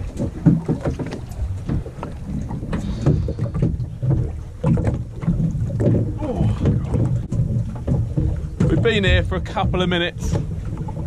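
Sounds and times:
water sloshing against boat hull: 0.0s - 11.0s
wind buffeting microphone: 0.0s - 11.0s.

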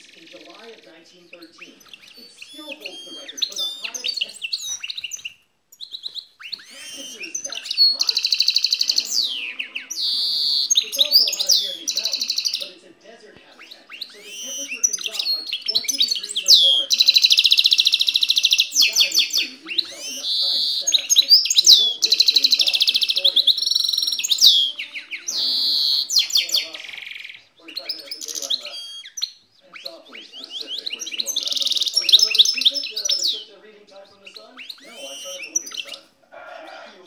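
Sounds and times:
finch singing: 0.0s - 37.0s.

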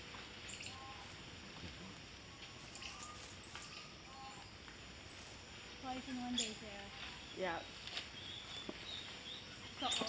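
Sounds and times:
monkeys chirping: 2.6s - 4.4s, 9.6s - 10.0s.

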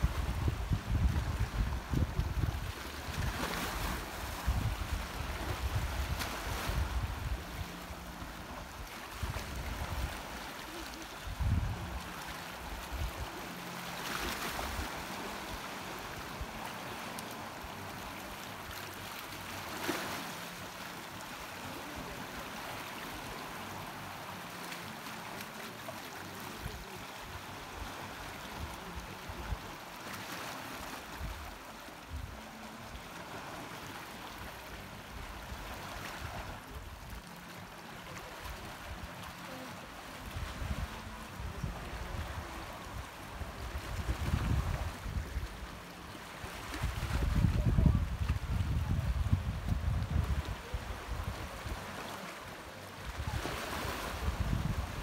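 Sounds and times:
wind rumbling on microphone: 0.0s - 13.6s, 39.8s - 52.0s, 53.0s - 55.0s
waves lapping on rocky shore: 0.0s - 55.0s.

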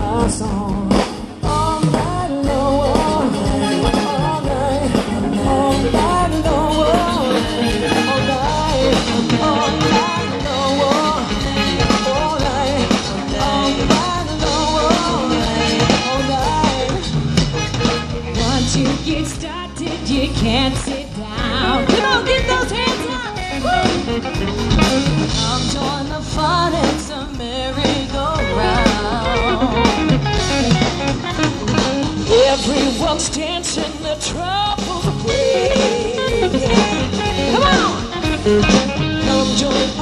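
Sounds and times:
bass: 0.0s - 40.0s
drums: 0.0s - 40.0s
live rock band playing: 0.0s - 40.0s
wavering melodic lead line: 0.0s - 40.0s.

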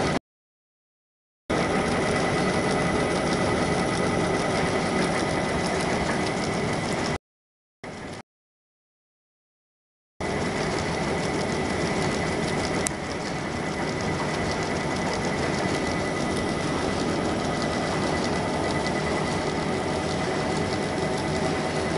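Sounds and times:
machine high whine: 1.5s - 7.2s, 10.2s - 21.9s
printing machine clattering: 1.5s - 7.2s, 10.2s - 21.9s.

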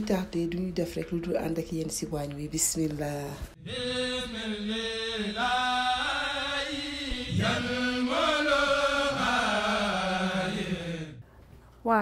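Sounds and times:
voices chanting long notes: 3.6s - 11.2s.

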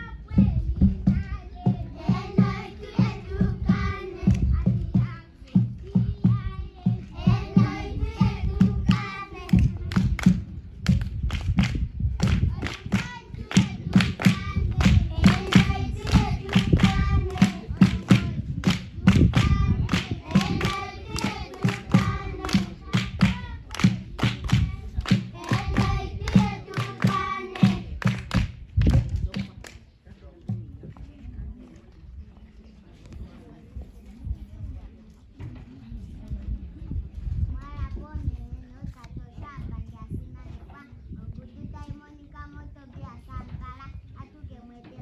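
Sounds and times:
group of voices singing: 1.7s - 4.8s, 6.8s - 10.2s, 12.2s - 28.3s
hands clapping on a beat: 7.2s - 29.9s.

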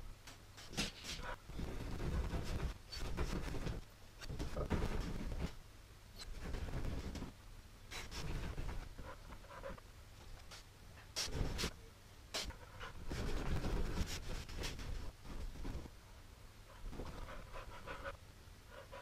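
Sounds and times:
dog panting: 16.7s - 19.0s.

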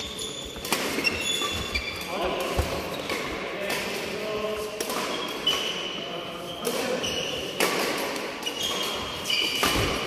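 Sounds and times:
shoes squeaking on court: 0.0s - 3.3s, 5.0s - 7.6s, 8.4s - 10.0s
rackets hitting shuttlecock: 0.4s - 4.1s, 4.7s - 5.8s, 6.6s - 10.0s.

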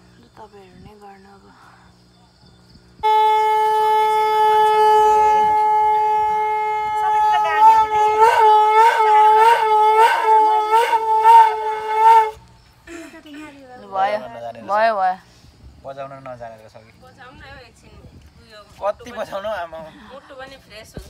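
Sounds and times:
conch shell blown: 3.0s - 12.4s.

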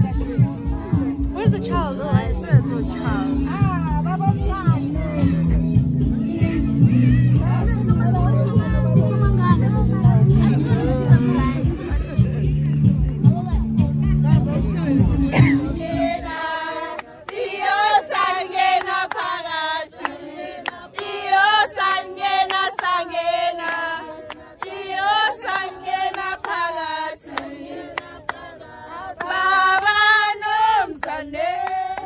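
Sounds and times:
women singing in chorus: 0.0s - 12.4s, 14.8s - 32.0s
hand claps: 11.9s - 14.0s, 20.0s - 23.0s, 23.6s - 24.8s, 25.4s - 26.6s, 27.3s - 28.5s, 30.9s - 32.0s.

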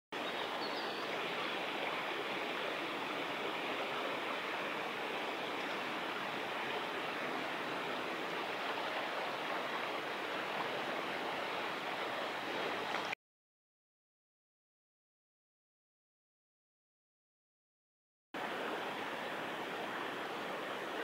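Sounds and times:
river water rushing: 0.2s - 13.2s, 18.4s - 21.0s.

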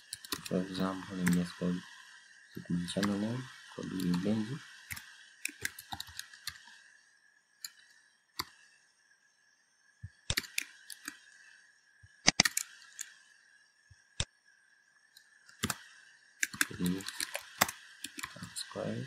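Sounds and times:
keyboard keystrokes and clicks: 0.0s - 0.6s, 4.9s - 6.6s, 10.3s - 11.2s, 15.5s - 15.8s, 16.4s - 18.5s
faint high hum: 0.0s - 19.0s.

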